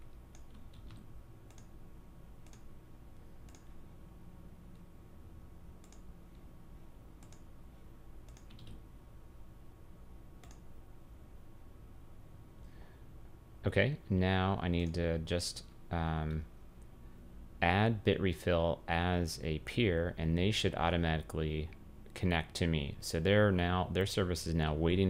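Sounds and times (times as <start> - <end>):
computer mouse clicks: 0.0 - 1.8, 2.4 - 2.7, 3.4 - 3.8, 5.8 - 6.5, 7.2 - 7.5, 8.2 - 8.8, 10.4 - 10.7
low steady hum: 0.0 - 25.0.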